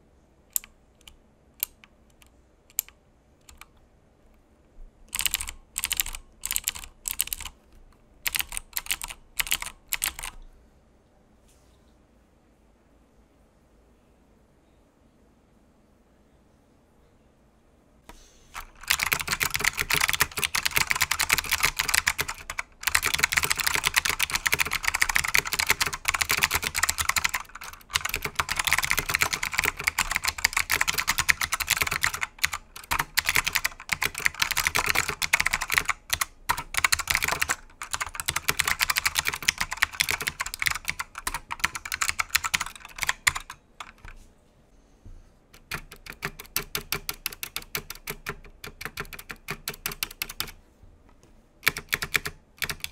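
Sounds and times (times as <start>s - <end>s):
clicky mechanical keyboard typing: 0.5s - 3.8s, 5.1s - 10.4s, 18.5s - 44.2s, 45.5s - 50.6s, 51.6s - 52.9s.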